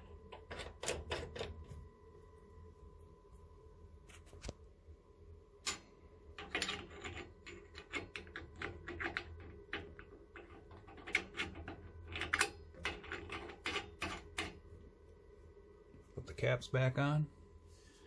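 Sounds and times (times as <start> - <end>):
metal caps clicking and scraping: 0.3 - 1.6, 6.4 - 14.6.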